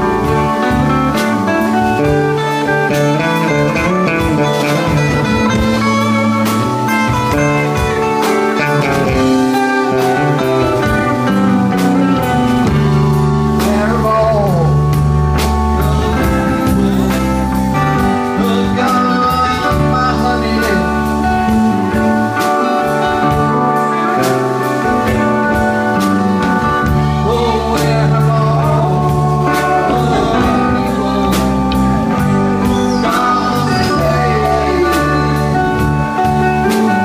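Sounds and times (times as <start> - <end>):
electric guitar: 0.0 - 37.0
man singing: 7.6 - 37.0.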